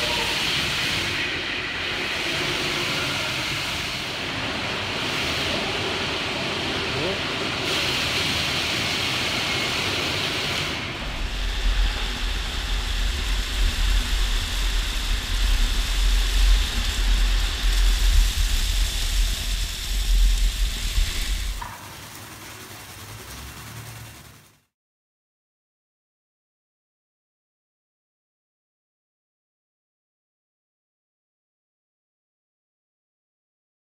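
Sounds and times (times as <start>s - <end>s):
car wash brushing and water spray: 1.8s - 24.7s
low hum: 10.8s - 24.7s
pulsing low rumble of spinning brush: 10.9s - 24.7s.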